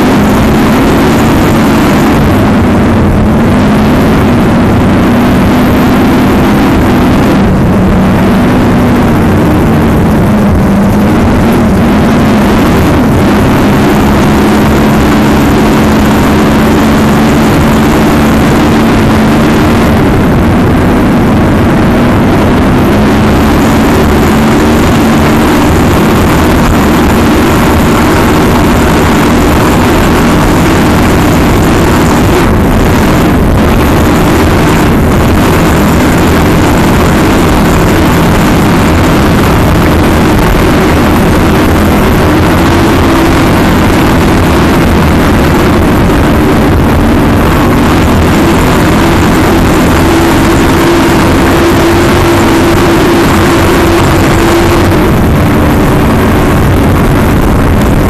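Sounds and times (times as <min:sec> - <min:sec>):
rushing wind: 0:00.0 - 0:58.0.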